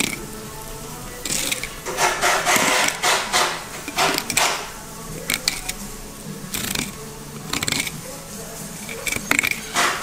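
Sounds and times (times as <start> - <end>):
knife scraping along fish bones: 1.3 - 4.6.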